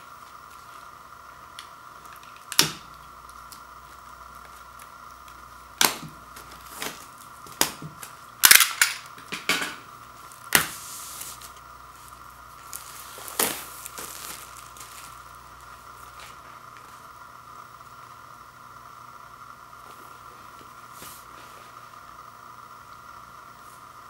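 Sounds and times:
shrink wrap crackling: 0.0 - 17.1.

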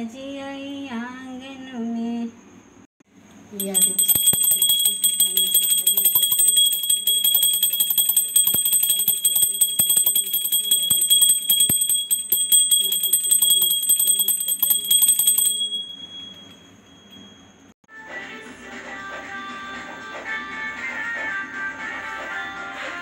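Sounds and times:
hand bell ringing rapidly: 3.6 - 16.6.

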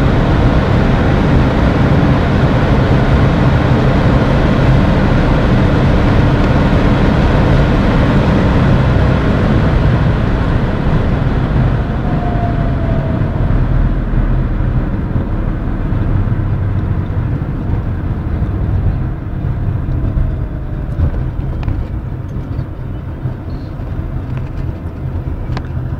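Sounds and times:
faint falling whine: 0.0 - 16.3
car cabin road and wind noise: 0.0 - 25.9.

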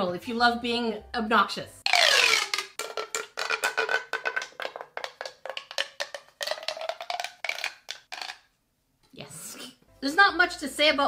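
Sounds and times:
plastic tube clicking: 1.9 - 8.5.

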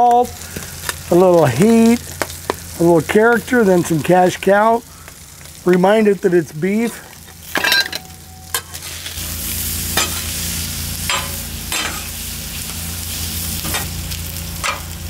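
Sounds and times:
meat sizzling on griddle: 0.0 - 15.0
metal spatula scraping steel: 10.0 - 10.4, 11.1 - 12.2.

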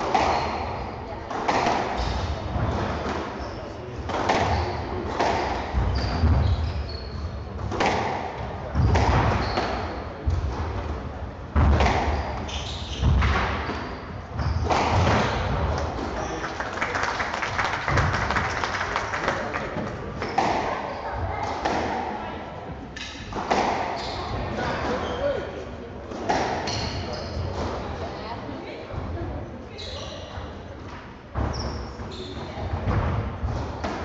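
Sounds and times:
squash racket strikes: 0.0 - 6.6, 7.6 - 16.2, 19.9 - 22.1, 22.9 - 25.0, 26.1 - 27.8, 31.3 - 34.0
ball hitting court walls: 4.0 - 6.6, 7.6 - 10.6, 11.6 - 16.3, 19.8 - 22.0, 23.0 - 24.1, 26.1 - 27.7.

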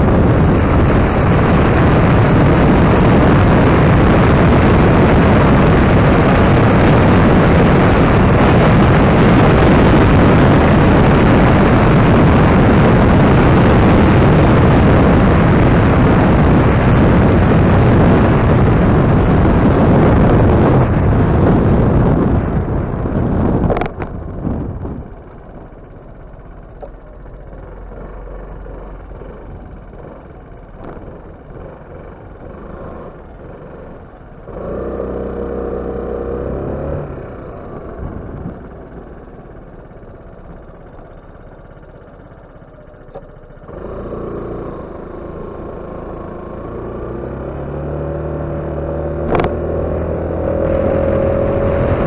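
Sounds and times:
wind noise rushing: 0.0 - 26.6, 46.2 - 52.0
scooter engine running: 0.0 - 52.0.

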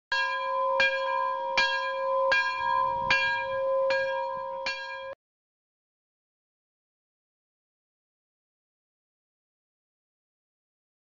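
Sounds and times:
bell tolling: 0.1 - 5.2.

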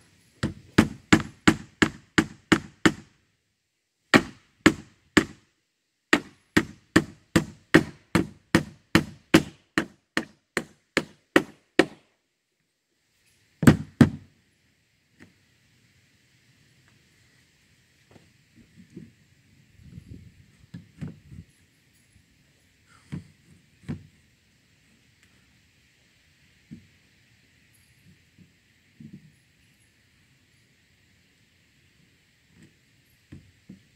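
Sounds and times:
hammer driving nail into wood: 0.4 - 3.1, 4.1 - 5.4, 6.1 - 12.0, 13.6 - 14.2.

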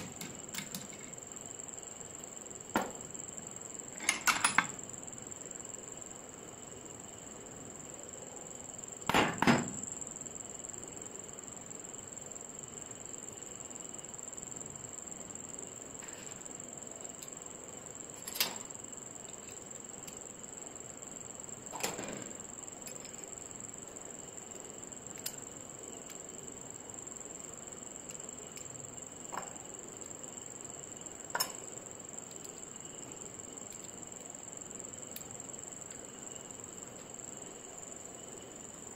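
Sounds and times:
crickets chirring: 0.0 - 38.9.

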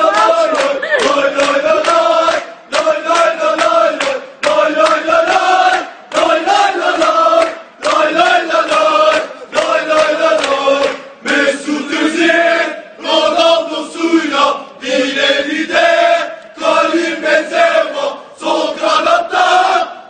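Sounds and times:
crowd of men chanting: 0.0 - 20.0.

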